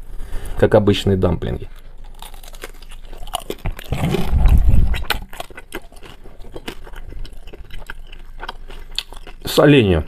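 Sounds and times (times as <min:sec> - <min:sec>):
biting and chewing dumpling: 0:01.7 - 0:09.9
wet mouth clicks: 0:03.5 - 0:06.8
muffled mouth noise: 0:03.9 - 0:05.3.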